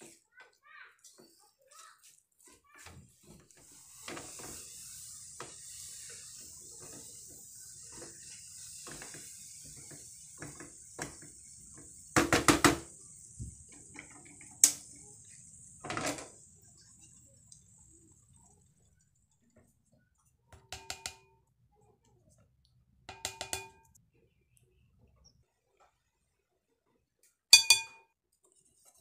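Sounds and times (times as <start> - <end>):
spatula scraping frying pan: 3.2 - 12.9
steady high hiss: 3.6 - 18.6
sharp knocks on pan: 12.2 - 12.9, 23.1 - 23.8.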